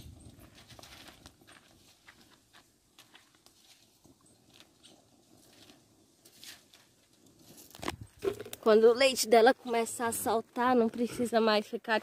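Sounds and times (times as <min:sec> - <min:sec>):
nuts crackling while roasting: 0:04.6 - 0:09.3.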